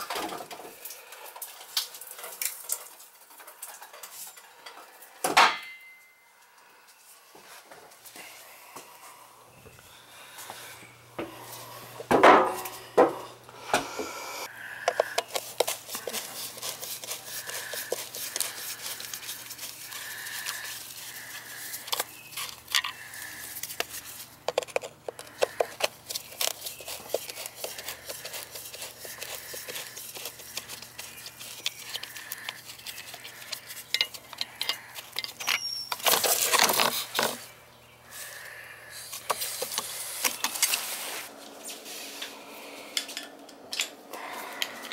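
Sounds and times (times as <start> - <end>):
shrubs rustling: 15.2 - 35.0.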